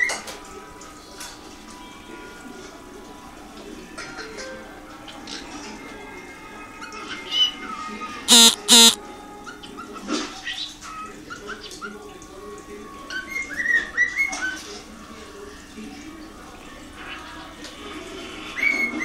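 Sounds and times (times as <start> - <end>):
cockatiel harsh calls: 8.3 - 9.0
cockatiel whistled notes: 8.3 - 9.0.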